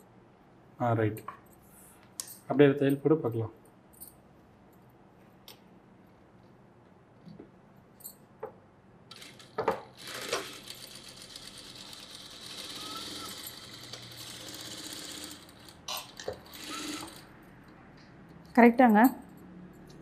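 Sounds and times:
sewing machine stitching: 0:09.1 - 0:17.3.

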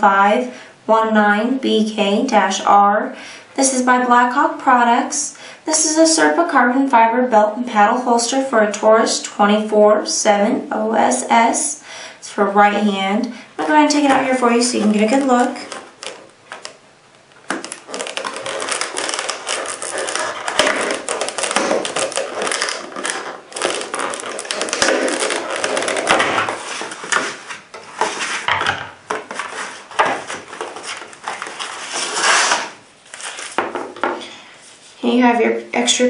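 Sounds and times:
plastic packaging crackling and popping: 0:13.9 - 0:34.0.

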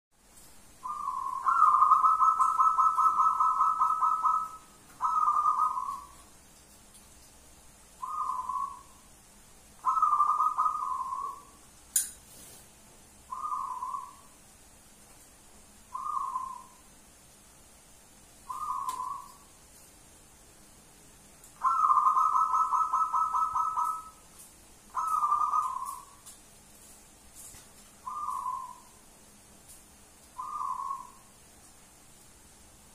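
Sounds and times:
dove cooing: 0:00.8 - 0:06.2, 0:08.0 - 0:09.0, 0:09.8 - 0:11.6, 0:13.3 - 0:14.3, 0:15.9 - 0:16.8, 0:18.5 - 0:19.5, 0:21.6 - 0:24.2, 0:24.9 - 0:26.2, 0:28.0 - 0:29.0, 0:30.4 - 0:31.3.

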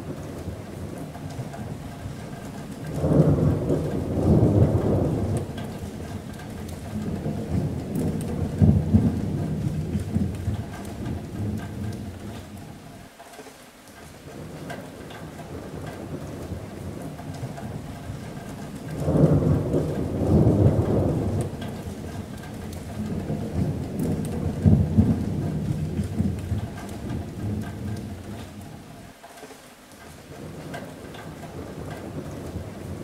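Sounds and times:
thunder rumbling: 0:00.0 - 0:12.8, 0:14.4 - 0:29.0, 0:30.3 - 0:33.0
rain drumming on metal roof: 0:00.0 - 0:33.0.

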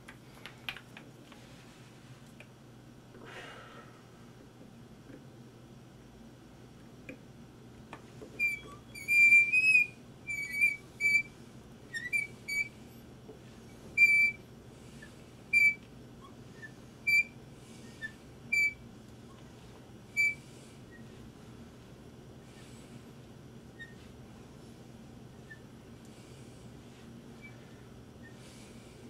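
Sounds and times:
hand drill squeaking in wood: 0:08.4 - 0:11.3, 0:11.9 - 0:12.7, 0:14.0 - 0:14.4, 0:15.5 - 0:18.8, 0:20.2 - 0:20.4, 0:23.8 - 0:24.0.

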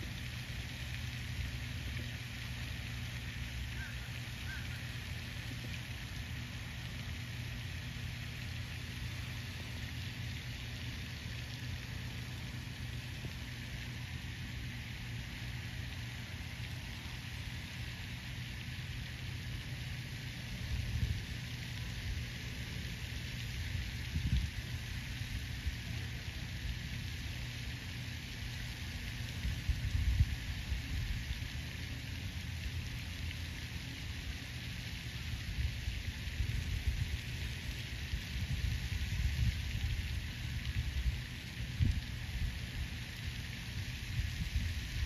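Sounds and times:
constant hiss: 0:00.0 - 0:45.0
wind rumbling on microphone: 0:20.6 - 0:22.4, 0:23.4 - 0:26.0, 0:29.3 - 0:31.5, 0:35.3 - 0:45.0.

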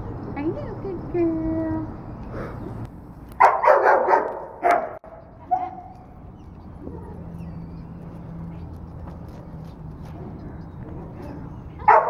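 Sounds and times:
dog barking: 0:03.4 - 0:05.8.

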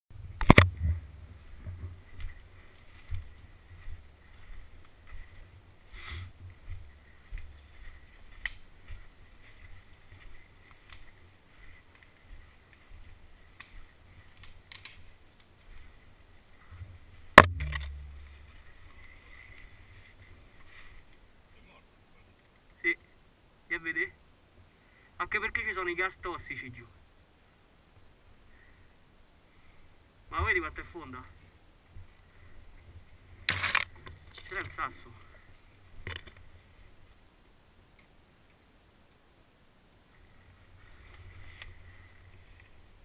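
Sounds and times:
footsteps crunching through dry leaves: 0:06.6 - 0:14.4.

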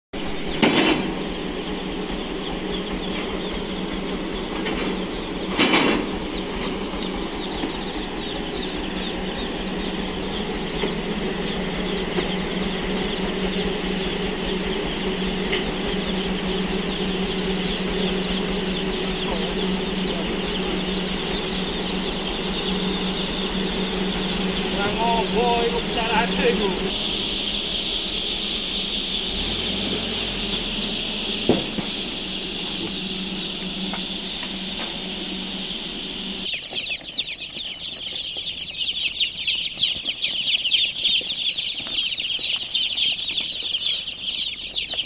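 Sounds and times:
low engine hum: 0:00.2 - 0:36.5
chicks peeping: 0:00.2 - 0:45.0.

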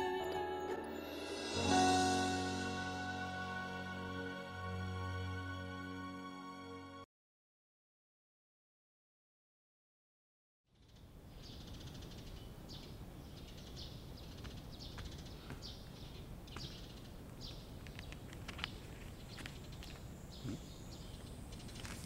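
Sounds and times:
birds chirping: 0:10.8 - 0:22.0.

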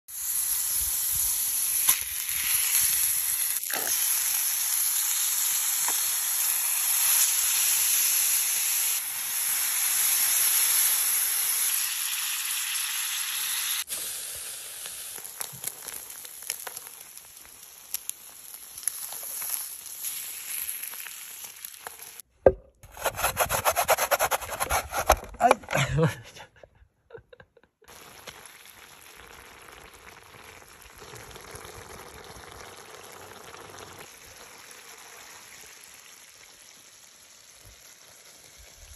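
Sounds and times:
onions sizzling in a skillet: 0:00.1 - 0:22.2, 0:27.9 - 0:38.9
pork sizzling on a grill: 0:00.1 - 0:22.2, 0:27.9 - 0:38.9
ginger grating on glass grater: 0:22.9 - 0:25.6.

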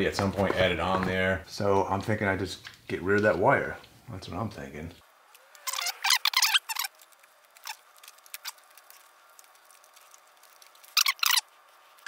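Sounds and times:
gloved hands rustling wiring: 0:05.3 - 0:12.0.

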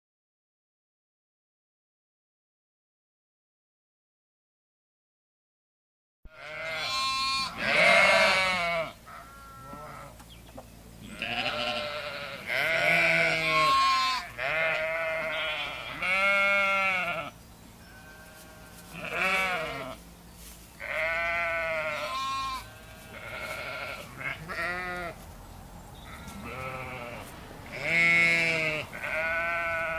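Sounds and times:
sheep bleating: 0:06.3 - 0:10.2, 0:11.0 - 0:20.0, 0:20.8 - 0:25.2, 0:26.0 - 0:29.9.

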